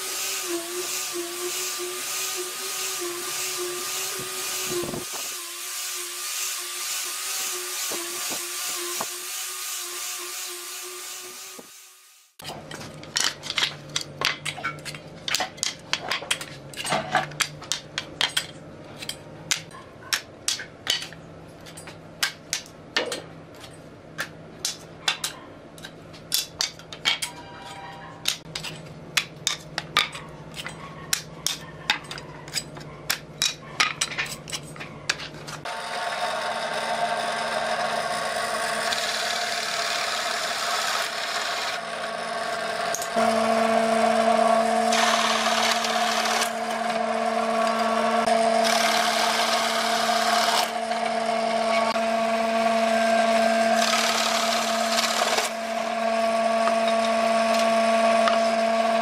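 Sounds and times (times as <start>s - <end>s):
drill press boring wood: 0.0s - 12.0s, 35.6s - 59.0s.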